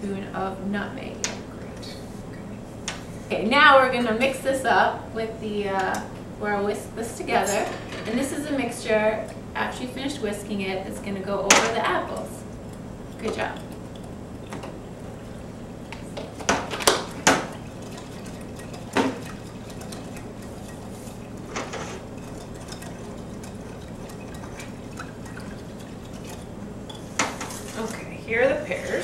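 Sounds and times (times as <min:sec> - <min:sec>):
whisking liquid in a bowl: 0:11.8 - 0:29.0
whisk clinking against bowl: 0:17.1 - 0:27.9.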